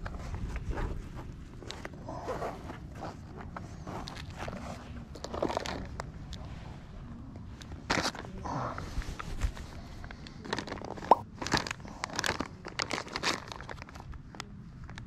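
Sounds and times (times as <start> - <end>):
plastic bags crinkling: 2.0 - 6.4, 7.6 - 15.0.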